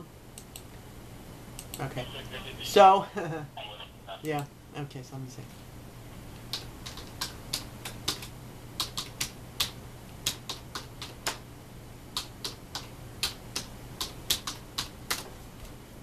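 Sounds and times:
keyboard typing clicks: 0:06.5 - 0:11.4, 0:12.2 - 0:15.2.

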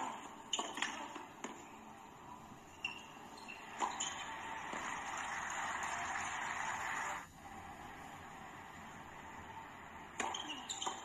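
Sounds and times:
tennis ball racket hits: 0:00.0 - 0:01.7, 0:02.8 - 0:07.0, 0:10.1 - 0:11.0
crowd applause: 0:04.0 - 0:09.8.

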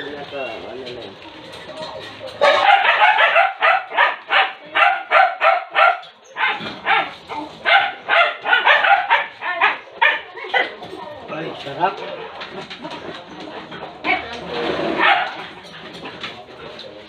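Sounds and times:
dog barking: 0:02.4 - 0:10.8, 0:14.9 - 0:15.5.

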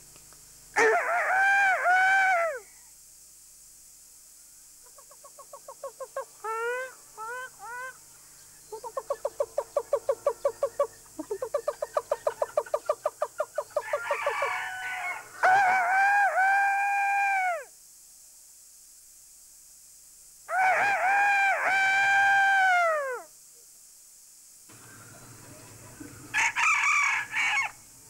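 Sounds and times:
rising whooping calls: 0:20.5 - 0:23.3.

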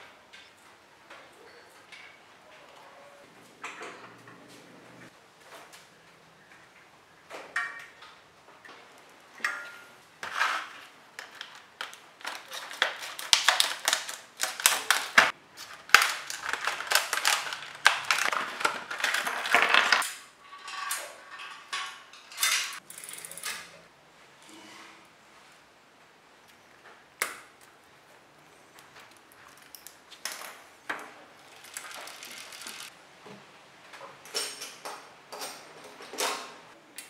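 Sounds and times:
scissors cutting plastic packaging: 0:11.2 - 0:20.0.

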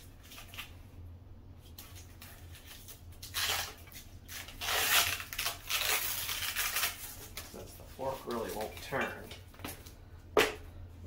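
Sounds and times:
gloved hands rustling and rubbing: 0:01.6 - 0:10.0.

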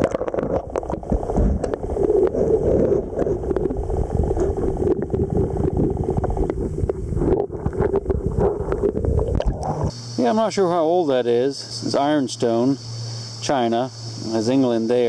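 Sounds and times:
muffled underwater river rushing: 0:00.0 - 0:09.9
small underwater clicks and crackles: 0:00.0 - 0:09.9.

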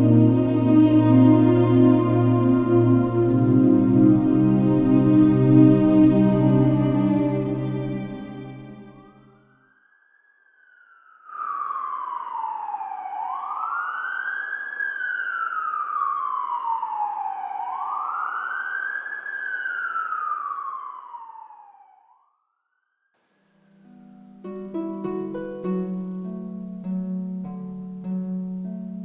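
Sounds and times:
police siren wailing: 0:00.0 - 0:09.2, 0:11.4 - 0:22.1.

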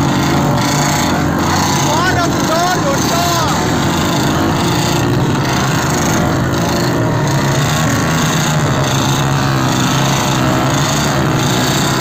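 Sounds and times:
motorcycle engines running: 0:00.0 - 0:12.0.

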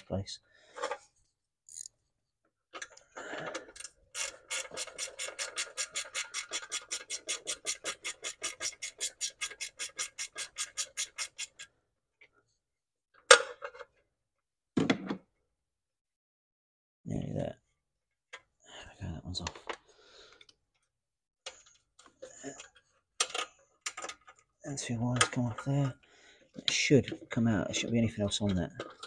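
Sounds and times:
ratchet wrench clicking: 0:01.7 - 0:01.9.

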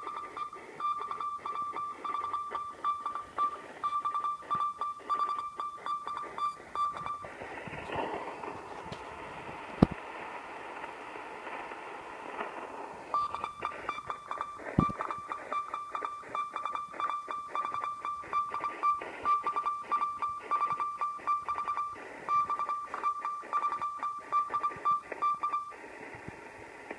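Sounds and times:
morse code beeping: 0:00.0 - 0:07.3, 0:13.2 - 0:25.7
static crackle: 0:00.0 - 0:26.9
radio band hiss: 0:06.6 - 0:15.5, 0:24.7 - 0:26.9.

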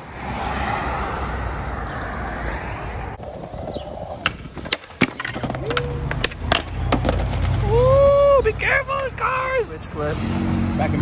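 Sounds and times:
skateboard wheels rolling on asphalt: 0:00.0 - 0:10.0
skateboard clacking on ground: 0:03.2 - 0:08.7.

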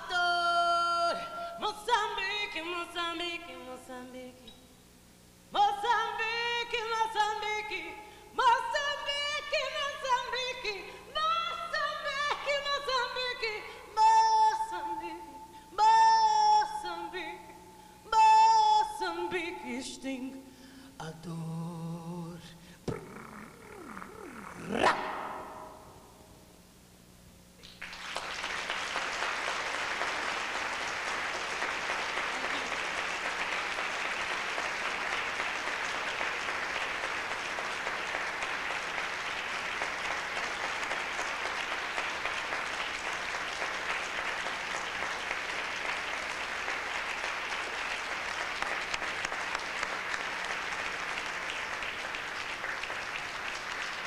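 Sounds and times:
audience applauding: 0:27.6 - 0:54.0.

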